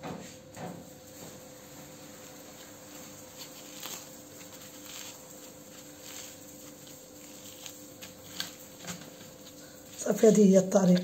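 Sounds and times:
faint steady hum: 0:00.0 - 0:11.0
flatbread tearing and crackling: 0:01.4 - 0:10.3.

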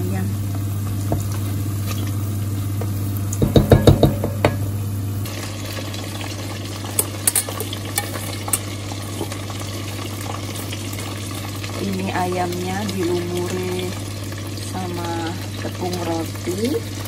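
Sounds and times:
food sizzling in hot oil: 0:00.0 - 0:17.0
steady hum: 0:00.0 - 0:17.0
wooden spatula knocking pot: 0:03.4 - 0:04.7.

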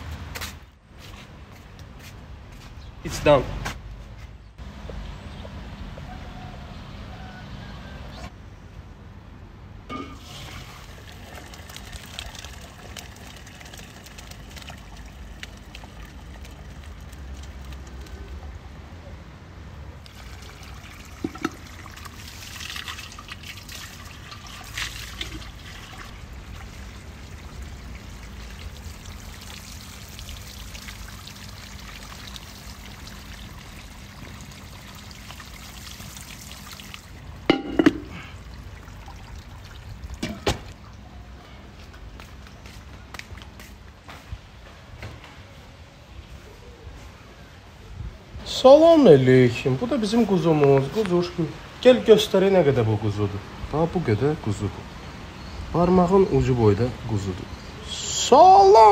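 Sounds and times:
water trickling: 0:09.9 - 0:18.8, 0:20.0 - 0:41.1.

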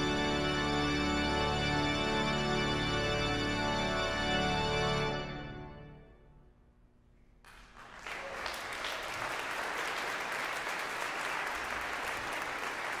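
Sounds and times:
organ music: 0:00.0 - 0:06.5
audience applauding: 0:07.5 - 0:13.0.

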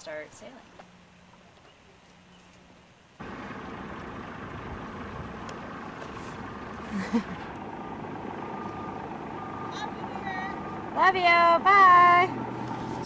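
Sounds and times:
boat engine running: 0:03.2 - 0:13.0.

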